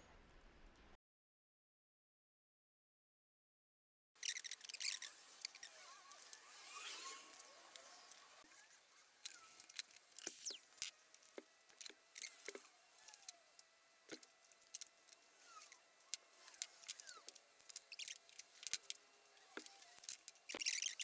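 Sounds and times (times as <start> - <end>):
short squeaks: 4.2 - 11.0, 16.4 - 21.0
small tools clicking on metal: 9.2 - 21.0.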